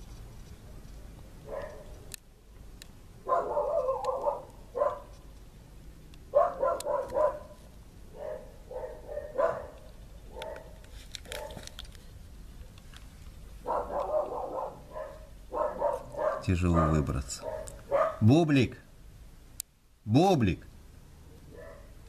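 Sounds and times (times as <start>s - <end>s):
dog barking: 1.4s - 2.0s, 3.2s - 5.2s, 6.3s - 11.7s, 13.6s - 18.3s, 21.4s - 22.0s.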